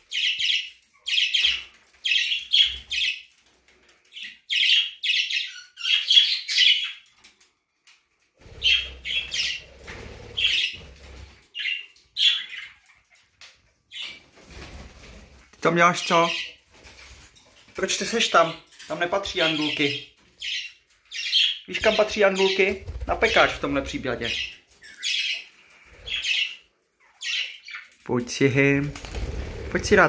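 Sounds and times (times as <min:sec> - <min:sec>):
budgerigars chirping: 0:00.1 - 0:03.2, 0:04.1 - 0:07.0, 0:08.5 - 0:10.9, 0:11.6 - 0:12.8, 0:18.1 - 0:28.0.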